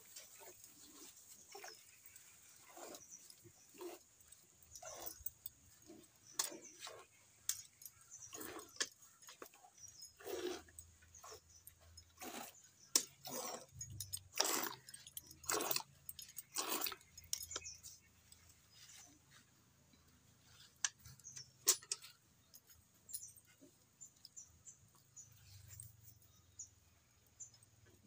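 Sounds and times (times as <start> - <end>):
milk spurting into a metal pail: 10.2 - 17.6.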